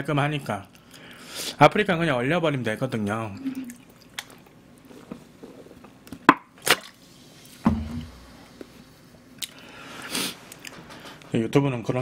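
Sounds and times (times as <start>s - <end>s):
person swallowing: 3.4s - 3.9s
low thud: 7.6s - 8.3s
breathy exhale: 9.5s - 11.1s.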